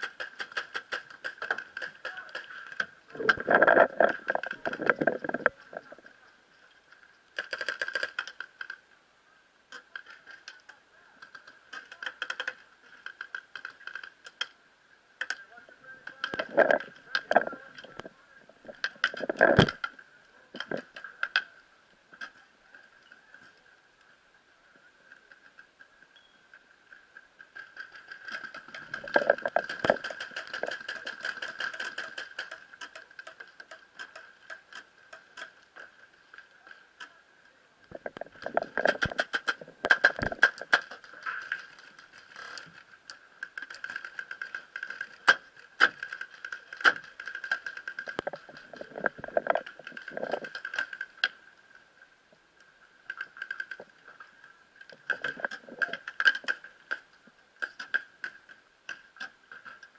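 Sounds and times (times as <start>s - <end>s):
movement noise: 0.0s - 7.0s, 27.0s - 37.1s
paintball markers firing: 38.8s - 41.0s.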